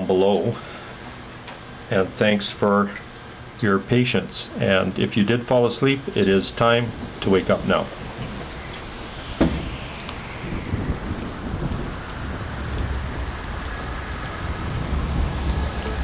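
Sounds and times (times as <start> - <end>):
steady rushing noise: 5.4 - 16.0
low rumble: 6.0 - 16.0.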